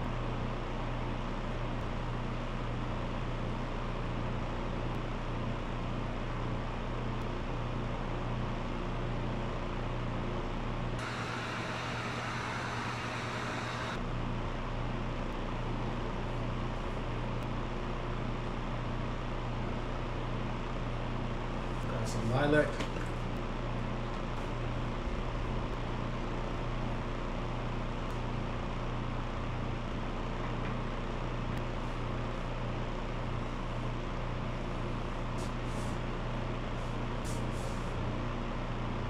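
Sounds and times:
low electrical hum: 0.0 - 39.0
air noise hiss: 11.0 - 14.0
louder hiss: 11.0 - 14.0.

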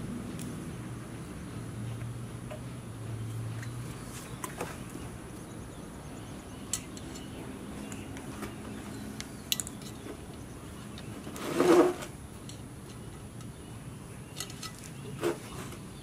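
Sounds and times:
trimmer line rubbing and rustling: 11.2 - 12.2.

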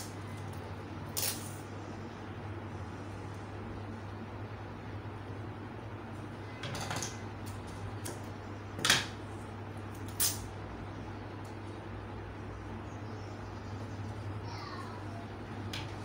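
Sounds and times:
steady low hum: 0.0 - 16.0
tape tearing rips: 10.0 - 10.5.

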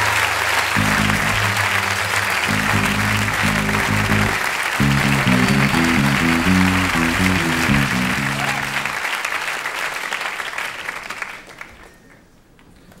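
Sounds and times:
song music: 0.7 - 9.0.

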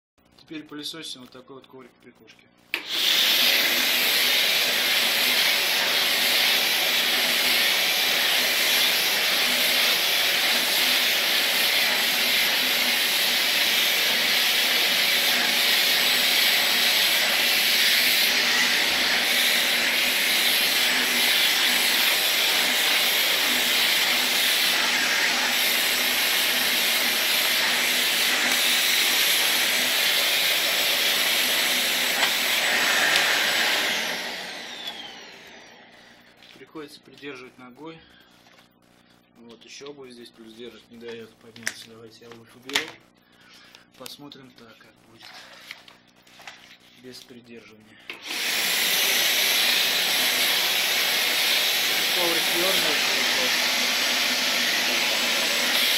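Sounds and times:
vacuum cleaner running: 2.7 - 36.6, 48.1 - 55.9.

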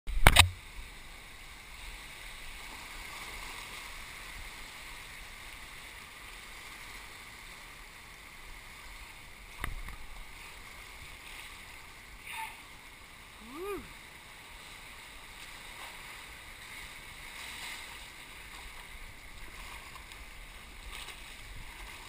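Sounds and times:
river water rushing: 0.2 - 22.0.

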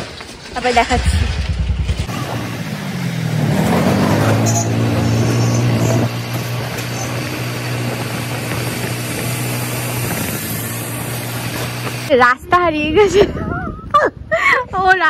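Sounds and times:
scooter engine running: 1.0 - 12.1.

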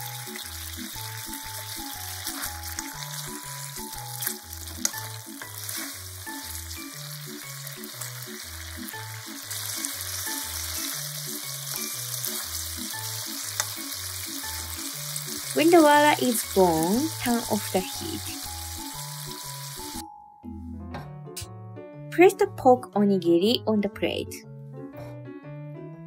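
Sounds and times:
food sizzling in a frying pan: 0.0 - 20.0
chopsticks clicking against pan: 4.2 - 5.1, 13.5 - 13.9.

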